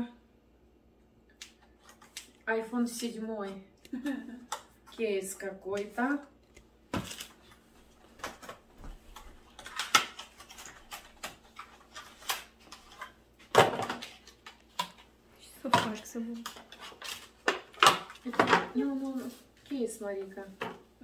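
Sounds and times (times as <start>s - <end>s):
plastic crinkling: 7.0s - 15.1s.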